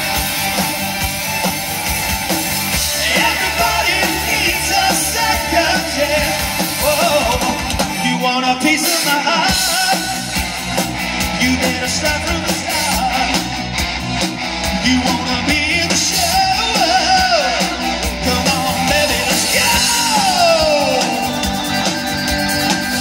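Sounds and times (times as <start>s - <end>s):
rock band playing live: 0.0s - 23.0s.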